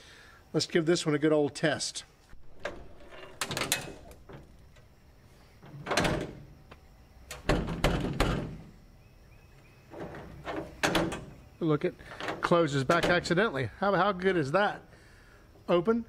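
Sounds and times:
metal tailgate clanking: 2.4 - 4.9, 5.6 - 6.7, 7.3 - 8.8, 9.9 - 13.4
metal rattling: 2.4 - 6.7, 7.3 - 8.8, 9.9 - 13.5.

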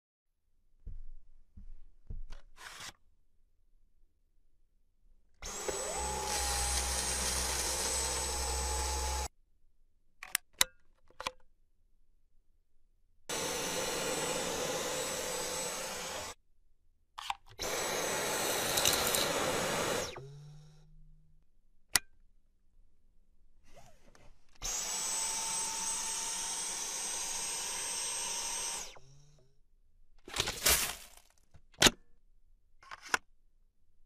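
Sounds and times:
vacuum cleaner motor whining: 5.4 - 9.3, 13.3 - 16.4, 17.6 - 20.8, 24.6 - 29.3.

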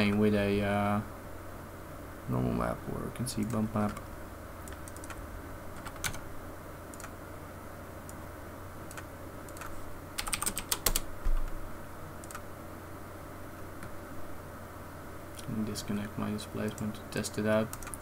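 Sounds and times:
keyboard keystrokes: 4.6 - 5.2, 8.9 - 11.5, 12.2 - 12.4, 17.7 - 18.0.

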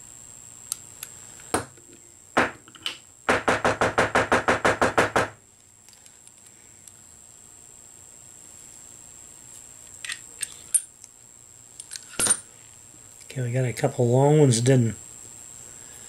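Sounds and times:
hair stacker tapping on bench: 3.3 - 5.4.

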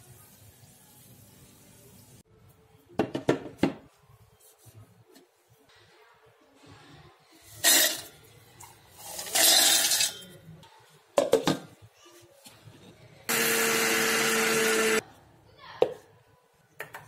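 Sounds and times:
grinder motor humming whine: 13.3 - 15.0.

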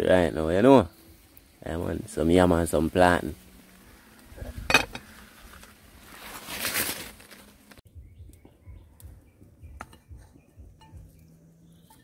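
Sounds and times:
faint bird chirps: 7.9 - 12.0.

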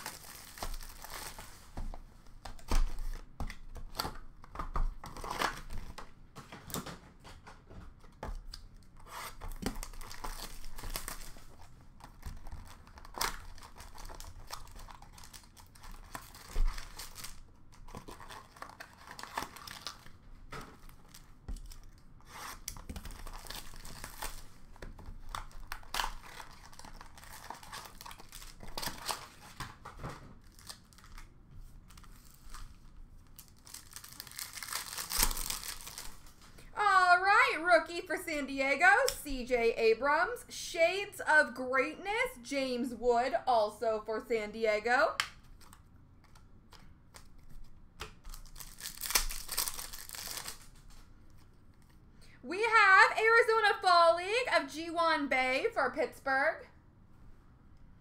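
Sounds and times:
foil wrappers crinkling and tearing: 0.0 - 1.8, 9.3 - 36.6, 47.1 - 51.0.

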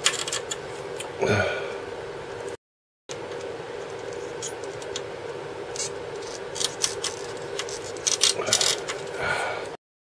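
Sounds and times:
steady hum: 0.0 - 9.8.

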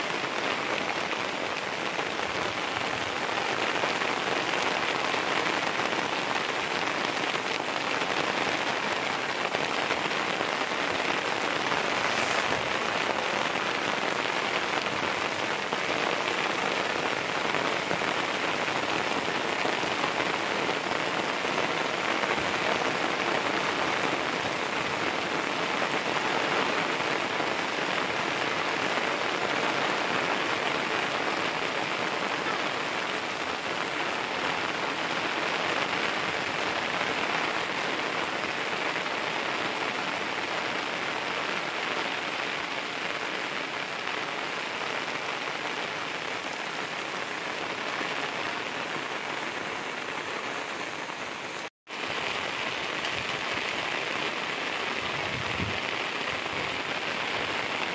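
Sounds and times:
steady rain falling: 0.0 - 57.9.

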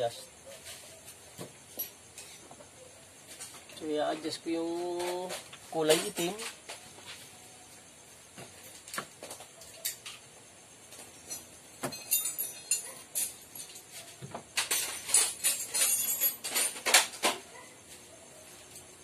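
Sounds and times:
metallic clicking and jingling: 1.6 - 3.8, 4.8 - 6.7, 8.6 - 17.7.

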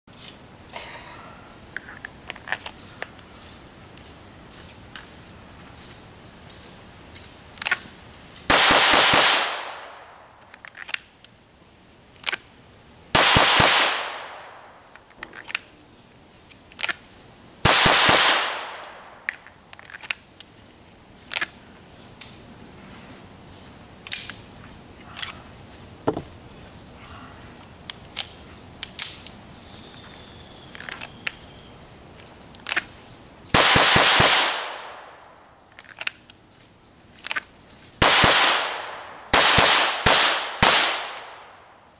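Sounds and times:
rapid gunshots echoing: 8.5 - 10.1, 13.2 - 14.6, 17.6 - 19.1, 33.6 - 35.2, 38.0 - 41.6.

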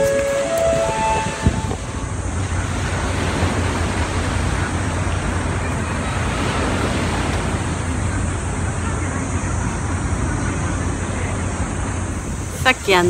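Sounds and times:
low rumble: 0.0 - 12.5
wind on microphone: 0.0 - 12.8
surf: 0.0 - 13.0.

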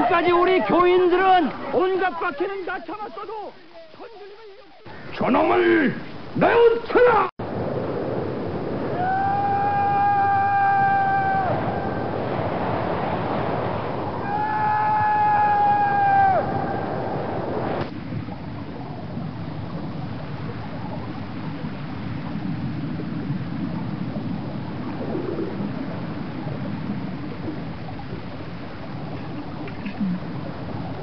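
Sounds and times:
underwater rumble and gurgling: 16.5 - 31.0.

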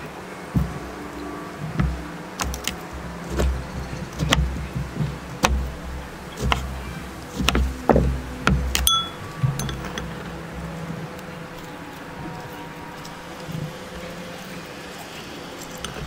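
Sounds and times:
knife chopping on plastic board: 1.8 - 5.7, 6.4 - 8.8.

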